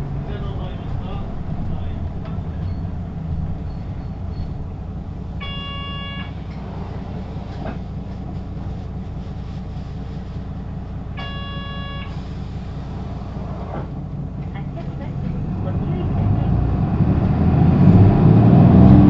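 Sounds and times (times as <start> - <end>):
bus diesel engine rumble: 0.0 - 19.0
short electronic tone: 5.4 - 6.4.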